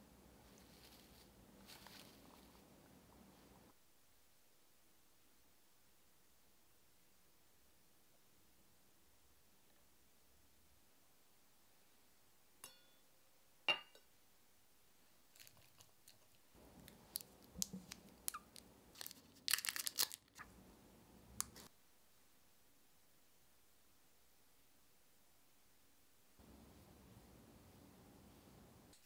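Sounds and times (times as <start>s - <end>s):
glass jar clinking: 13.7s - 14.1s
candy wrappers crinkling: 15.3s - 20.5s.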